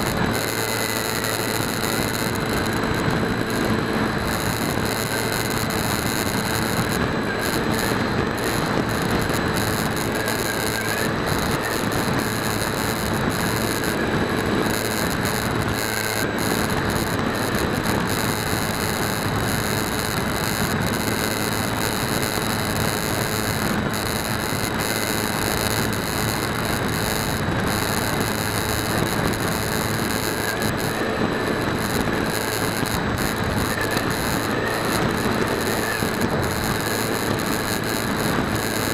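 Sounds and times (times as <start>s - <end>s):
air rushing over microphone: 0.0s - 38.9s
electric motor and propeller hum: 0.0s - 38.9s.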